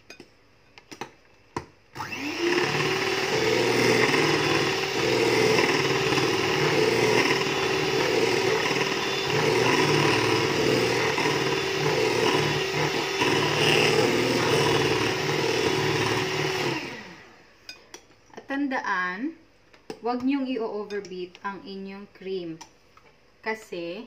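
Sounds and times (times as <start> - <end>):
electric hand mixer whipping cream: 2.0 - 17.5.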